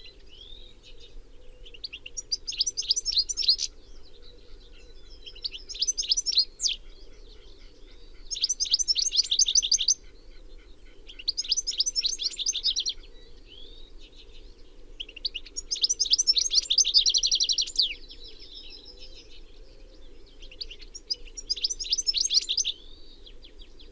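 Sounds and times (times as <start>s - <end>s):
goldfinch twittering trills: 1.7s - 4.0s, 5.2s - 10.0s, 11.1s - 13.0s, 15.1s - 18.0s, 20.5s - 22.9s.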